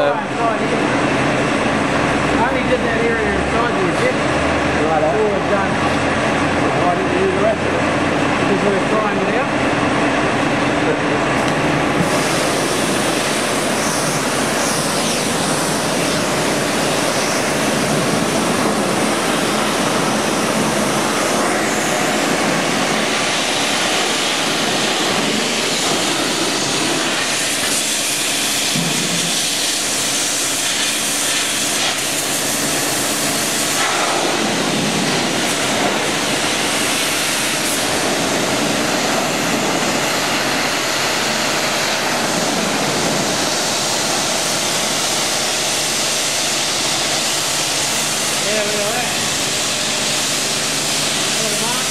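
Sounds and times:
pressure washer spraying metal: 11.4s - 51.9s.

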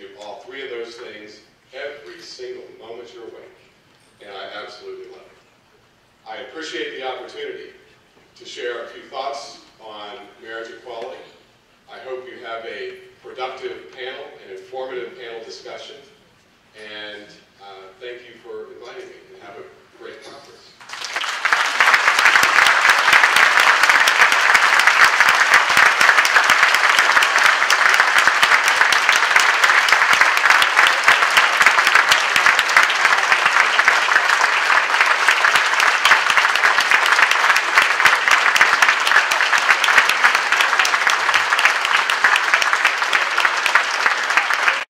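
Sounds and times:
large audience applauding: 20.8s - 44.9s.

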